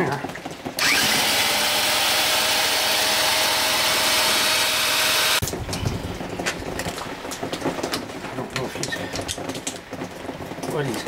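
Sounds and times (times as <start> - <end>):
electric drill whine: 0.8 - 5.4.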